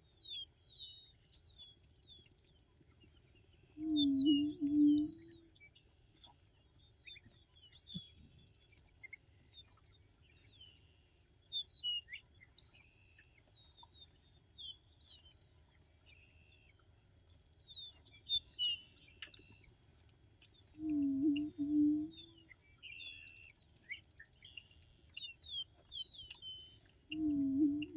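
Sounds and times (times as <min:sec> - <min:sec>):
songbirds whistling: 0:03.8 - 0:05.4, 0:07.0 - 0:09.2, 0:13.6 - 0:19.7, 0:20.8 - 0:27.9.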